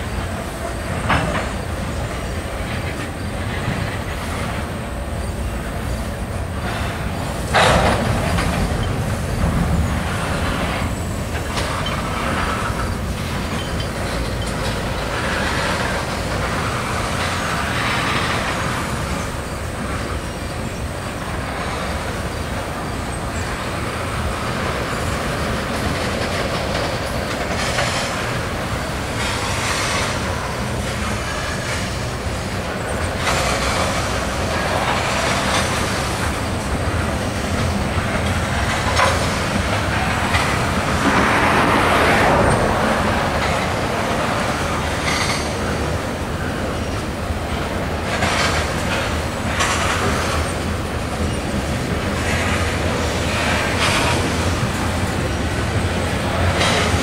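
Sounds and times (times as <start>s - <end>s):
steel wheels rumbling on rail: 0.0s - 57.0s.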